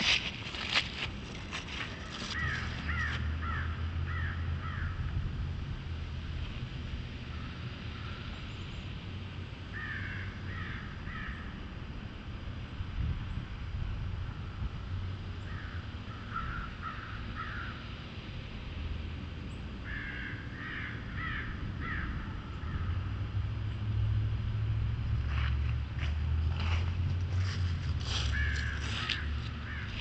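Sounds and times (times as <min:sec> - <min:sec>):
crows cawing: 0:01.9 - 0:05.0, 0:09.7 - 0:11.5, 0:15.5 - 0:17.8, 0:19.8 - 0:22.9, 0:28.1 - 0:30.0.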